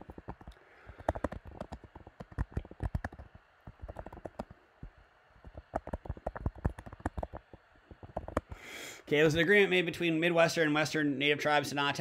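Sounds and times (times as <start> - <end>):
keyboard key clicks: 0.0 - 4.5, 5.4 - 8.6.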